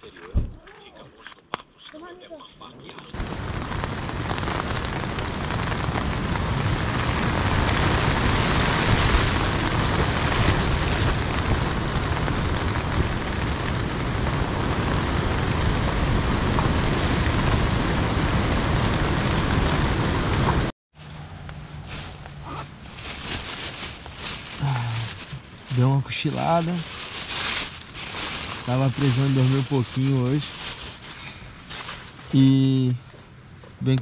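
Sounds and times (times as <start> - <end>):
heavy rain drumming on tent: 3.1 - 20.7, 23.0 - 31.1
steady low rumble: 3.2 - 31.0.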